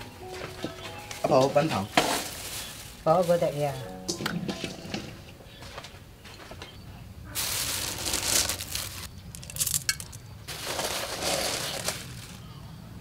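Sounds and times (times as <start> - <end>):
rock sugar rattling in glass jar: 7.5 - 12.2.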